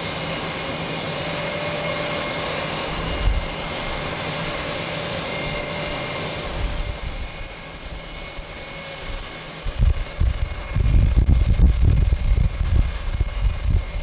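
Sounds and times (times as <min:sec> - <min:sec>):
jet engines at takeoff power: 0:00.0 - 0:14.0
wind buffeting microphone: 0:02.8 - 0:04.0, 0:05.5 - 0:14.0.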